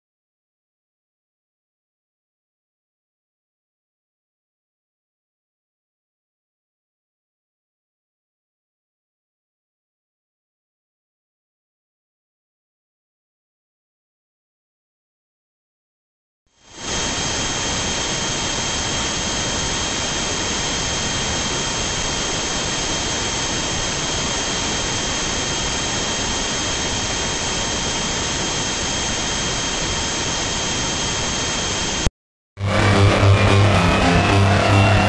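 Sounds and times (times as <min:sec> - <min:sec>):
high whining tones: 0:16.7 - 0:35.0.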